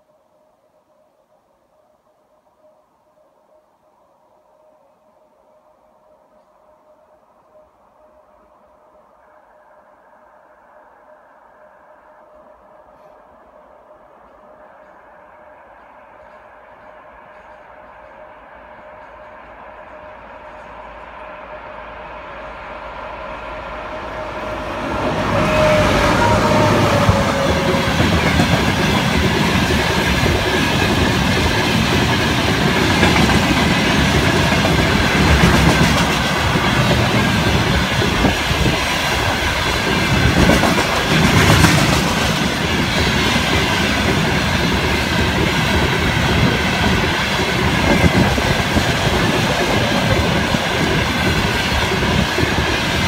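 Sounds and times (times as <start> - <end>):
freight train passing: 4.4 - 53.0
wheels clattering on rails: 26.2 - 53.0.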